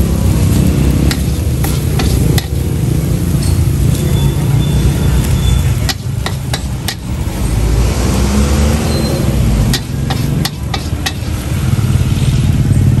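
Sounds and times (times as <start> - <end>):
gas burner rumbling: 0.0 - 13.0
metal ladle clanking against wok: 1.0 - 4.8, 5.5 - 7.6, 9.0 - 11.6.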